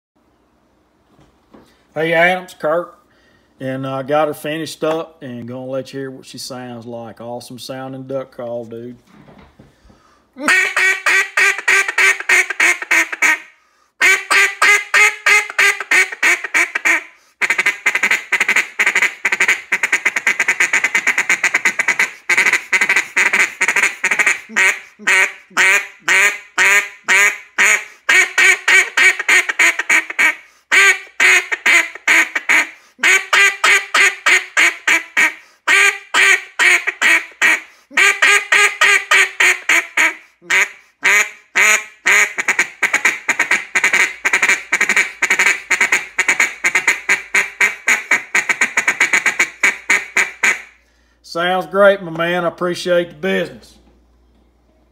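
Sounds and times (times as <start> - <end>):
duck call quacking: 10.4 - 50.8.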